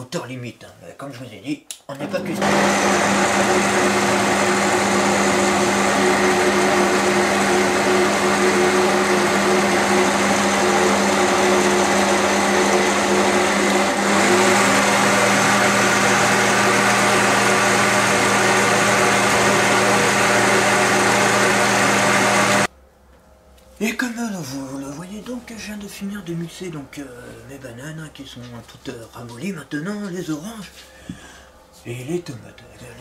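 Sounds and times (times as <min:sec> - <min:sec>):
electric blender motor: 0:02.0 - 0:22.7.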